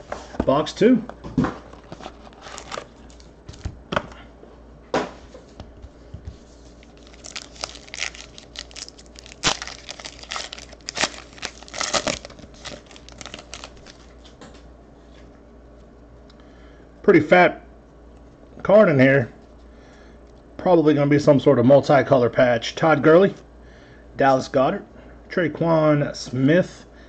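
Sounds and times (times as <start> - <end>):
foil wrapper crinkling and tearing: 1.8 - 3.7, 6.7 - 14.2
cards clicking and rustling: 6.8 - 14.3.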